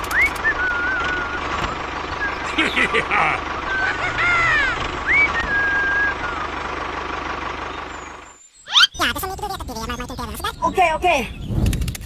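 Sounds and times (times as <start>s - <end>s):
whistling pitch glides: 0.0s - 2.5s, 5.0s - 6.6s
tractor engine running: 0.0s - 8.4s.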